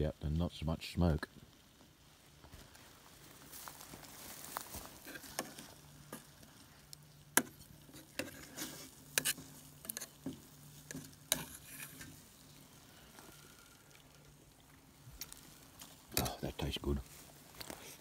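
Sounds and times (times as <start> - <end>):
spoon scraping and clinking pot: 7.9 - 12.2.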